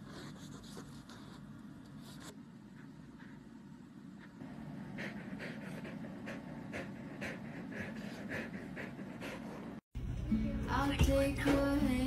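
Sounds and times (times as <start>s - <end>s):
dog panting: 4.2s - 9.8s.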